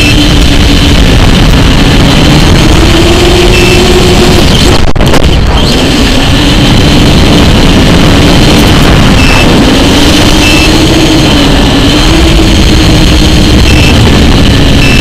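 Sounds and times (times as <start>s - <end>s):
motor hum: 0.0s - 15.0s
wind rushing past microphone: 0.0s - 15.0s
short high beeps: 9.1s - 9.6s, 10.3s - 11.0s, 13.6s - 14.1s, 14.7s - 15.0s.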